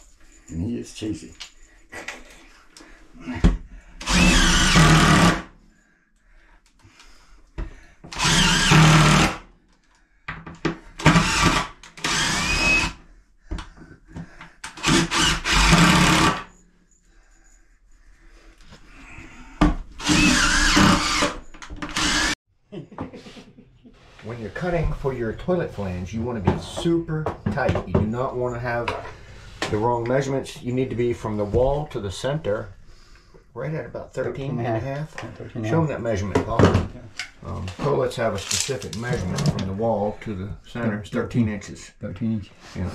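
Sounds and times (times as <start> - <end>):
drill driving screws: 4.0 - 5.5, 8.1 - 9.4, 11.0 - 13.0, 14.7 - 16.5, 20.0 - 22.4.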